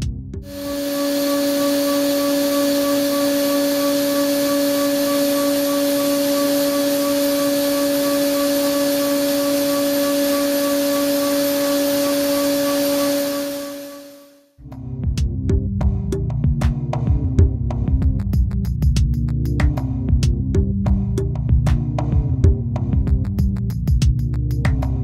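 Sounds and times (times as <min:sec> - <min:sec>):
hiss of metal cutting: 0:00.5 - 0:14.2
milling spindle steady tone: 0:00.5 - 0:14.2.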